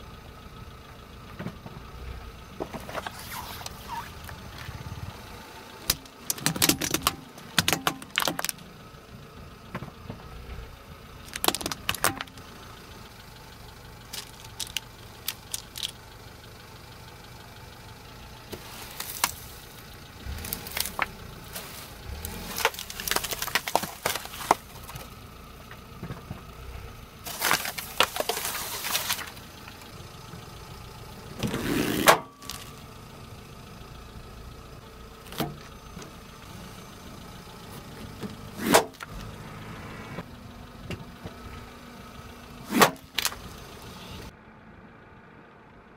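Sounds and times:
car engine idling: 0:00.0 - 0:45.9
plastic pegs cracking under tyre: 0:05.8 - 0:08.7, 0:11.2 - 0:12.5, 0:14.1 - 0:16.0, 0:18.5 - 0:25.1, 0:27.3 - 0:29.9, 0:31.4 - 0:32.8, 0:42.7 - 0:43.9
foam block crunching: 0:20.3 - 0:25.1, 0:27.3 - 0:29.4.

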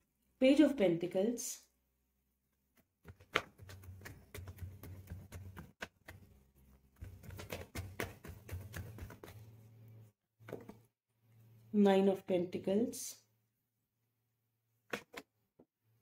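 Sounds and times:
cards clicking and flicking: 0:03.1 - 0:06.3.

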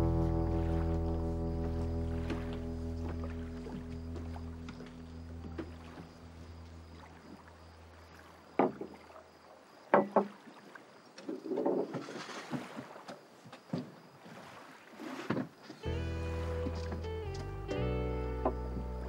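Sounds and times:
background music: 0:00.0 - 0:05.3, 0:15.8 - 0:19.0.

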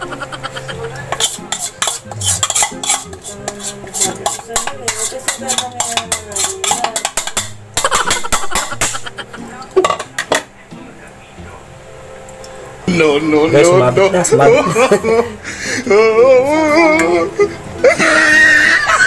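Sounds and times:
metal utensils clinking on bowls: 0:00.9 - 0:09.0, 0:09.6 - 0:10.5.

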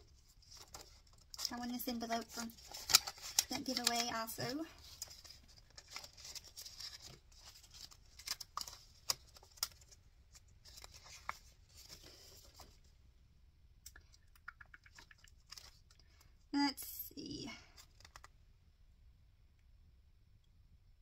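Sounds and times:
plastic pockets and paper rustling: 0:00.1 - 0:12.9, 0:17.7 - 0:18.3.

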